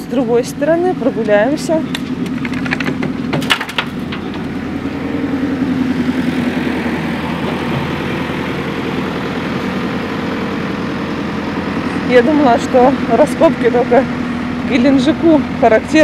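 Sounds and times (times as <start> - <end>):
machinery engine running: 0.0 - 16.0
cracks and knocks: 2.0 - 4.5.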